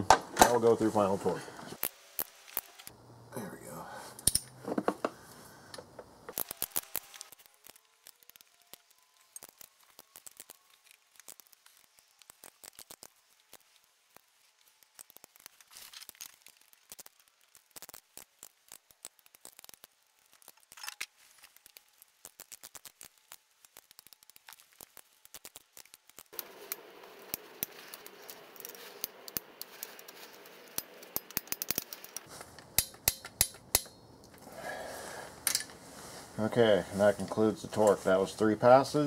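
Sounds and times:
torque wrench ratchet clicking: 30.7 - 32.1.

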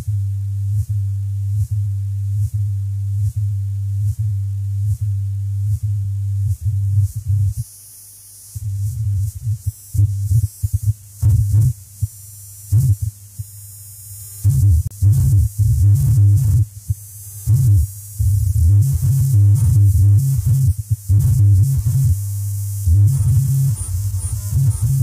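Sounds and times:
stuttering low bass tone: 17.5 - 25.0.

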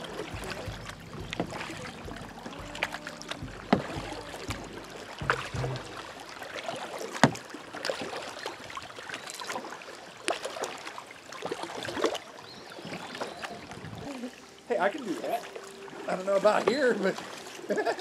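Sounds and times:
water dripping: 0.0 - 8.0
paddle splashing in water: 0.0 - 18.0
sharp knock: 0.4 - 6.1.

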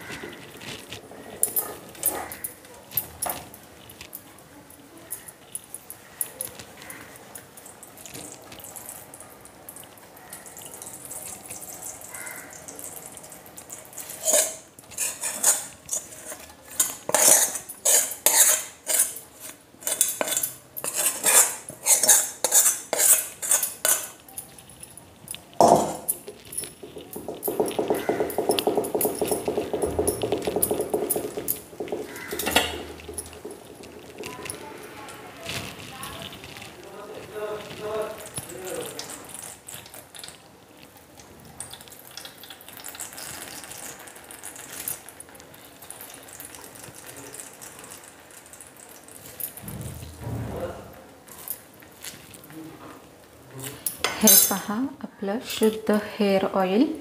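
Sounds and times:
metal utensils scraping and knocking: 0.0 - 4.2, 12.7 - 36.7, 53.9 - 54.8.

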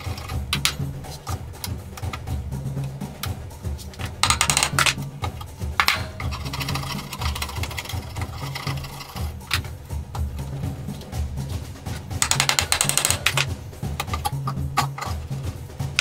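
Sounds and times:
background music with steady beat: 0.0 - 16.0
blade scraping wood: 3.7 - 9.8.

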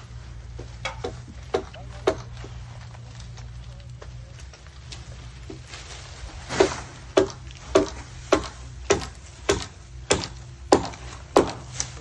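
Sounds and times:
steady low hum: 0.0 - 12.0
hammer knocking on wooden poles: 0.6 - 2.3, 7.2 - 11.7.

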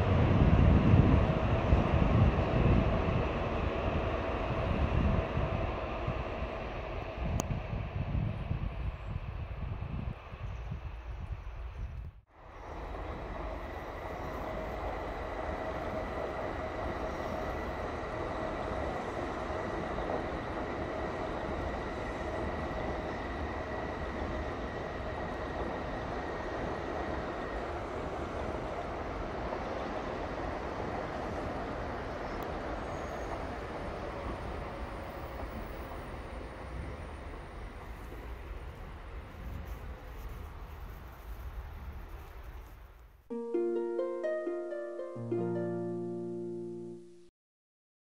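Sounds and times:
train passing rumble: 0.0 - 43.0
faint high whine: 10.4 - 25.3.

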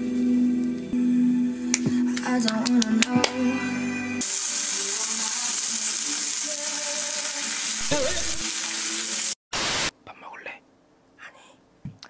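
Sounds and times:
meat sizzling in a frying pan: 4.2 - 9.4.

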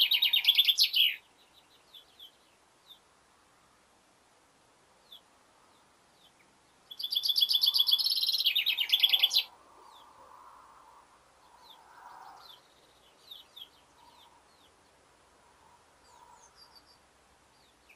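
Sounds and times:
bird singing: 0.0 - 3.1, 5.0 - 10.3, 11.4 - 15.0, 15.6 - 17.9
faint bird chirps: 0.0 - 3.2, 5.0 - 17.9.

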